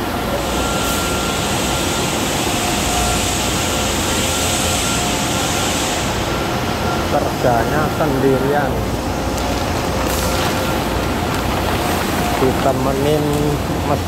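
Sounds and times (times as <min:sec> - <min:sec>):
machine hiss: 0:00.4 - 0:07.2
glass-washing machine rumbling: 0:06.2 - 0:14.0.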